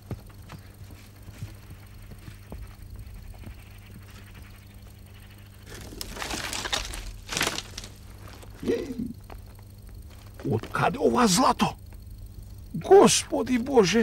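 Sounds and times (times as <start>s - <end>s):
donkey hoofsteps on dirt: 0.0s - 11.0s
steady low hum: 0.0s - 14.0s.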